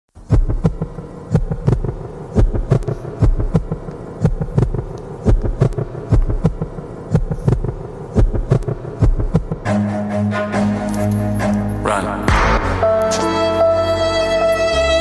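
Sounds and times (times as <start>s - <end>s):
programmed drum pattern: 0.2s - 9.8s, 11.2s - 13.3s
steady held drone: 0.2s - 15.0s.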